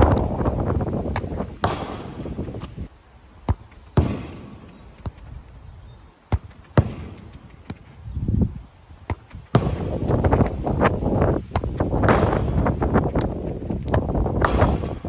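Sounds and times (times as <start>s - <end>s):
wind buffeting microphone: 0.0s - 2.9s, 4.0s - 15.0s
football thuds on turf: 1.0s - 2.8s, 3.4s - 5.3s, 6.3s - 8.0s, 9.0s - 15.0s.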